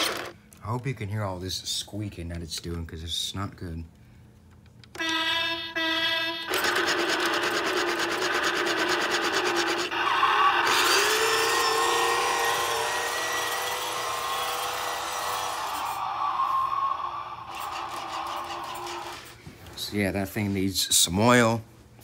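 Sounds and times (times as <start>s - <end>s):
gears squeaking: 4.9s - 16.0s, 17.4s - 19.4s
toy motor whine: 5.0s - 19.3s.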